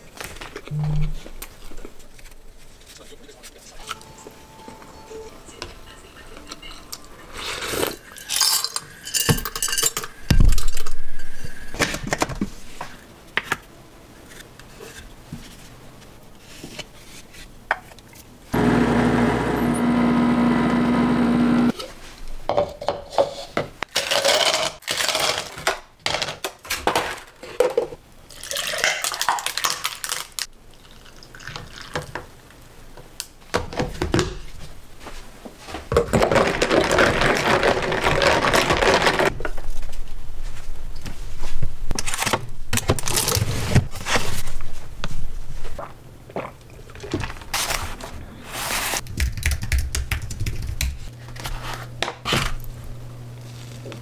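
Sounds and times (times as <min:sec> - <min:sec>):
espresso machine humming: 0:18.6 - 0:21.7.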